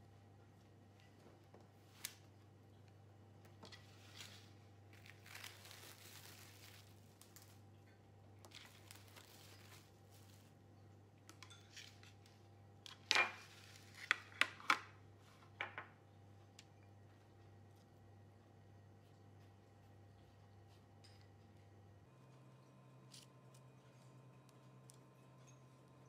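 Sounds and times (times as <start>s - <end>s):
cling film crinkling: 4.0s - 7.7s, 8.5s - 10.6s.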